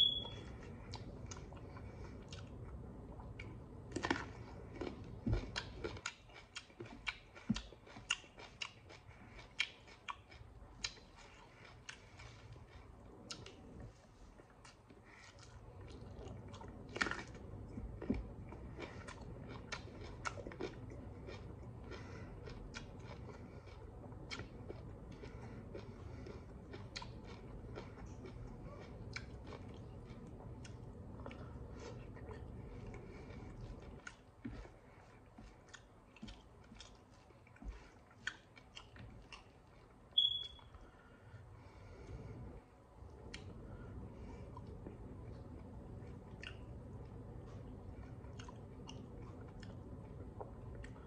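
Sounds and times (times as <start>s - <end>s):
high-pitched chirp: 0.0s - 0.4s, 40.2s - 40.7s
person chewing with wet smacks: 0.0s - 41.0s, 43.0s - 51.0s
low steady hum: 0.0s - 51.0s.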